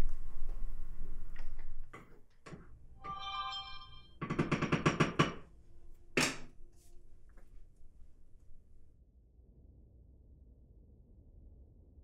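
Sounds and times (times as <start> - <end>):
phone chiming tone: 3.0 - 4.2.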